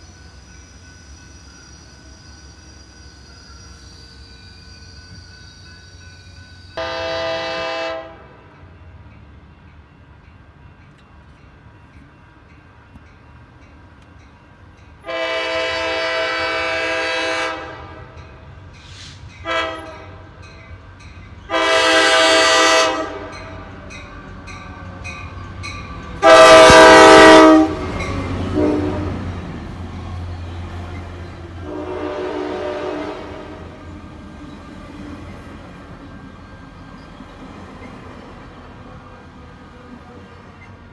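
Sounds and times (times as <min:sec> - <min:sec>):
train cars rumbling past: 0:00.0 - 0:40.9
train air horn blasts: 0:06.8 - 0:08.4, 0:15.0 - 0:18.2, 0:18.9 - 0:20.3, 0:21.5 - 0:23.8, 0:26.2 - 0:29.3, 0:31.6 - 0:33.8.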